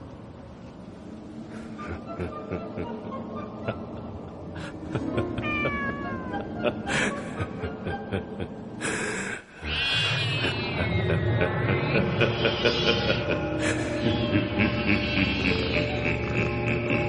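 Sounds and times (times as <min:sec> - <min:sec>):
background music: 0:00.1 - 0:17.0
cat meowing: 0:05.4 - 0:06.4.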